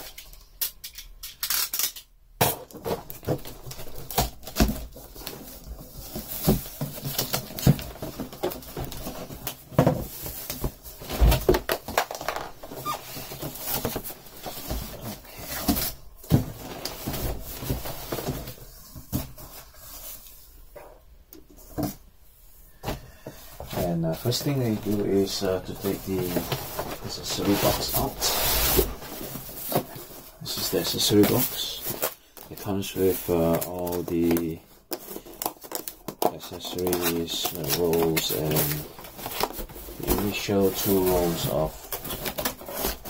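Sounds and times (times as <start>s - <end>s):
packing tape slit and pulled: 0.0s - 2.1s
cardboard scraping and rustling: 2.7s - 20.2s, 23.5s - 32.2s, 32.9s - 43.0s.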